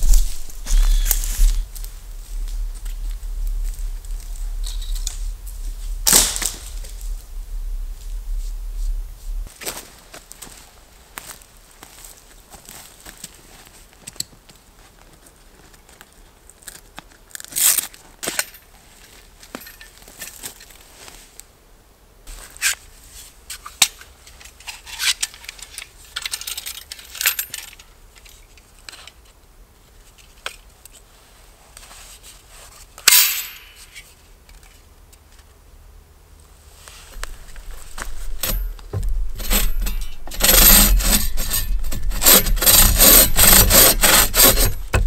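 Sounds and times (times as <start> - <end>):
rustling scrapes: 0.0 - 13.8, 36.6 - 45.0
gear rustling: 36.8 - 45.0.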